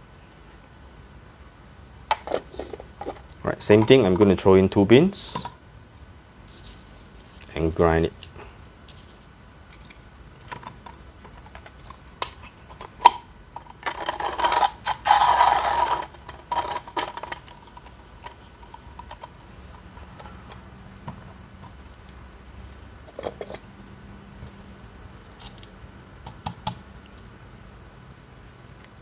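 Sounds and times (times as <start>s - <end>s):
coffee grinder crunching beans: 11.5s - 20.2s.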